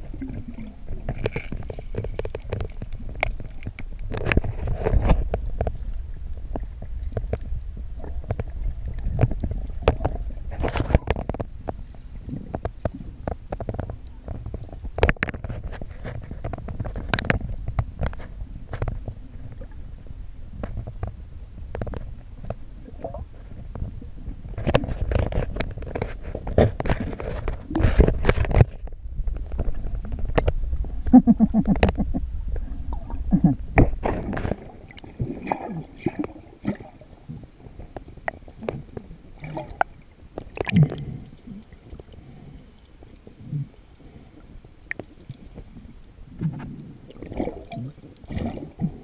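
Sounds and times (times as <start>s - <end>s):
gurgling bubbles: 0.0s - 11.4s, 29.2s - 49.0s
underwater rumble of moving water: 0.0s - 49.0s.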